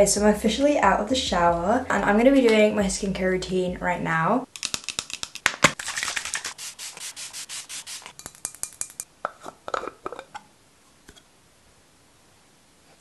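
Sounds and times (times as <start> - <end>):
hands rubbing skin: 4.8 - 9.0.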